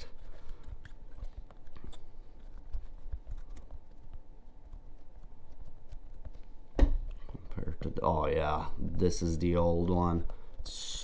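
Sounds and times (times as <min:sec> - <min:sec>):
hands squeezing rubber tire: 0:00.0 - 0:07.4.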